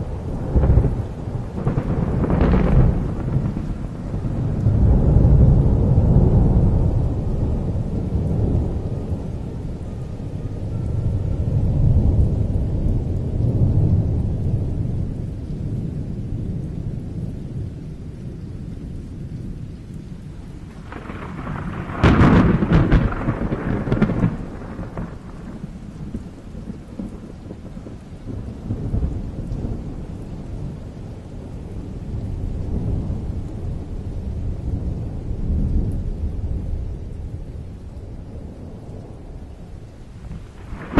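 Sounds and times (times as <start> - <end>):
thunder rumbling: 0.0 - 40.9
sharp thunderclap: 0.4 - 7.0, 20.8 - 29.9, 40.2 - 40.9.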